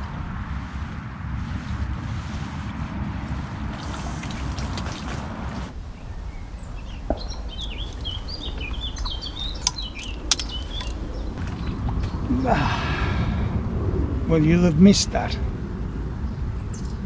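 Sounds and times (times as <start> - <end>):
wind rumbling on the microphone: 0.0 - 17.0
small bird chirping: 5.8 - 11.4
sharp clicks: 8.9 - 11.1.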